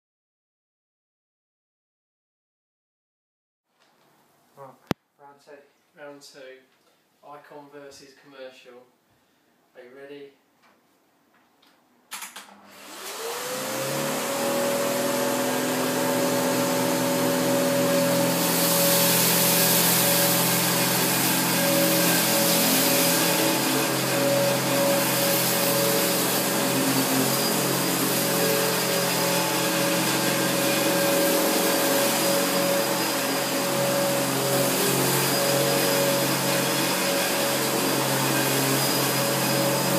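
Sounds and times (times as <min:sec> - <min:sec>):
vacuum cleaner motors running: 0:12.4 - 0:39.9.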